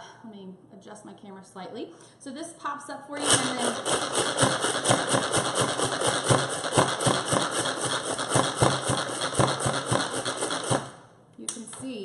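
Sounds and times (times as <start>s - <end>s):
manual food processor whirring rattle: 3.2s - 11.1s.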